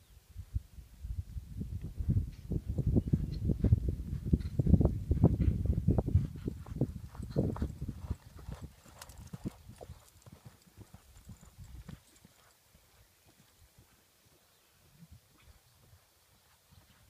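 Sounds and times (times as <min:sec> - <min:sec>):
horse hoofbeats on dirt: 0:03.0 - 0:14.5.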